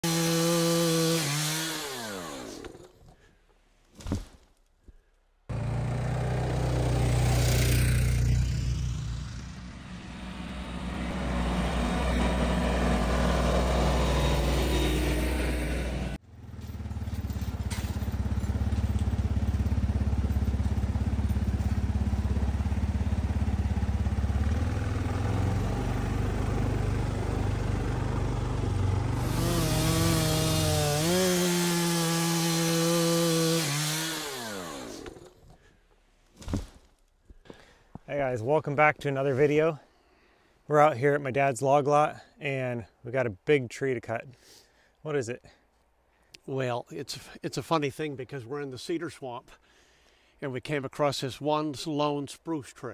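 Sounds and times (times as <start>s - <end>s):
small engine winding down: 0.0s - 2.9s, 5.5s - 35.4s
diesel tractor engine running: 5.5s - 31.2s.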